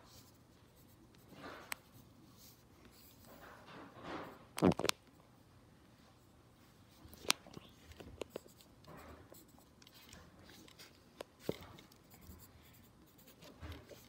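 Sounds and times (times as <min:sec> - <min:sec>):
pencil scratching on paper: 0:08.3 - 0:14.0.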